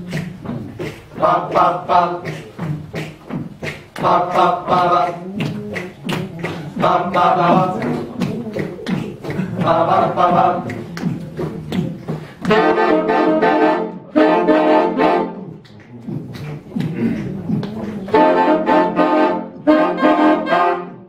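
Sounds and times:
saxophone ensemble chords: 0.0s - 15.8s, 16.6s - 21.0s
steady rhythmic clicking: 0.0s - 21.0s.

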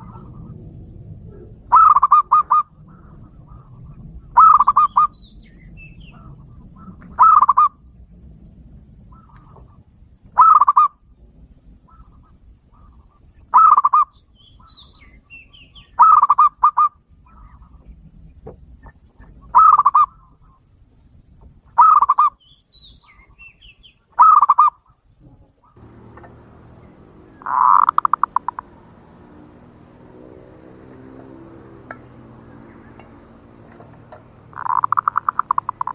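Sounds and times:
dove trilled coo: 1.3s - 5.2s, 6.1s - 7.8s, 10.4s - 11.0s, 13.5s - 14.1s, 16.0s - 17.7s, 19.5s - 20.2s, 21.8s - 22.4s, 24.2s - 24.7s, 25.8s - 35.9s.

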